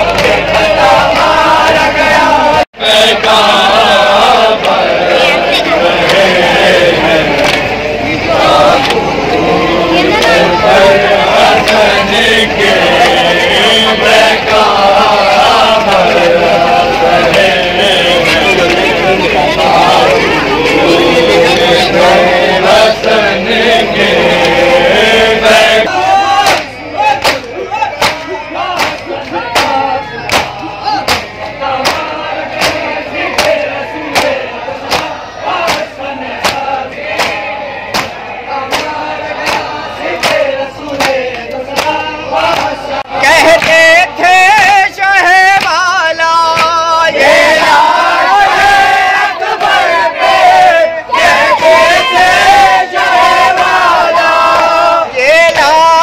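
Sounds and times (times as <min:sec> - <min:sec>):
men chanting together: 0:00.0 - 0:56.0
hands slapping chests in unison: 0:07.3 - 0:07.7, 0:26.4 - 0:42.8, 0:43.4 - 0:43.8, 0:45.6 - 0:45.9, 0:46.5 - 0:46.9
hands slapping bare chests: 0:34.2 - 0:42.8, 0:46.5 - 0:46.8
man singing a lament: 0:38.8 - 0:48.4, 0:54.2 - 0:56.0.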